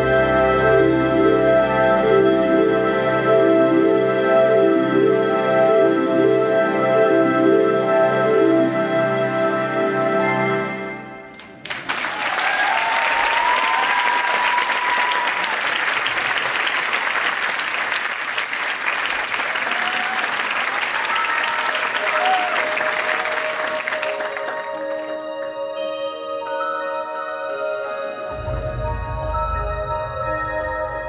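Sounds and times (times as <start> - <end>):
music: 0.0 - 12.6, 21.4 - 31.0
audience applauding: 11.4 - 25.5.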